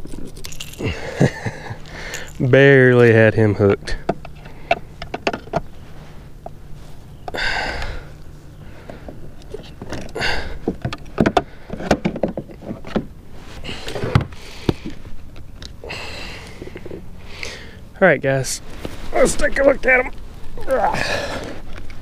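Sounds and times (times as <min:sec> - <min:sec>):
knocks and rustling from handling: 0:04.0 - 0:06.5, 0:08.9 - 0:15.7.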